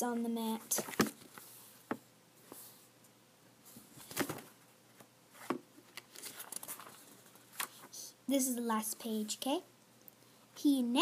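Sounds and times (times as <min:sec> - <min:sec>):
book rustling and tapping: 0:00.6 - 0:02.6, 0:04.0 - 0:07.9.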